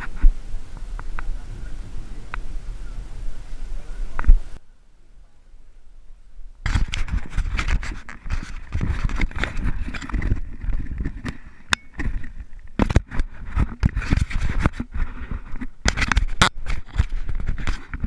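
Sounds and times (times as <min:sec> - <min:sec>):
wind buffeting microphone: 0:00.0 - 0:04.6, 0:05.9 - 0:18.0
camera handling thumps and rubbing: 0:06.7 - 0:18.0.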